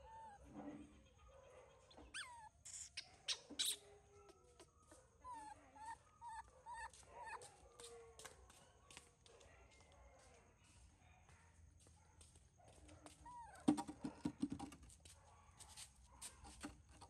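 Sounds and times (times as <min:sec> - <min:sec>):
baby monkey squeaking: 0:02.1 - 0:03.8.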